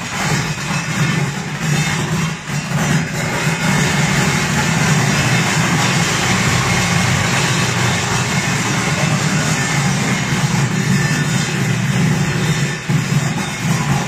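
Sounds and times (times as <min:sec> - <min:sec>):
sorting machine humming: 0:03.3 - 0:14.0.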